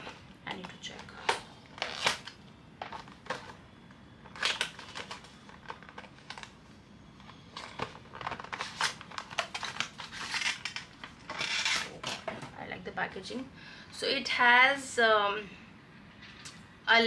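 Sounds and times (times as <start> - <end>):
packaging rustling and clicking: 0.0 - 3.6, 4.2 - 6.6, 7.2 - 12.6.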